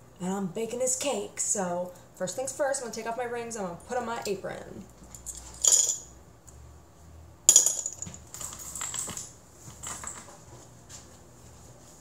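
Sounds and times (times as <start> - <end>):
metal rings clinking on hard surface: 5.1 - 6.2, 7.5 - 10.2.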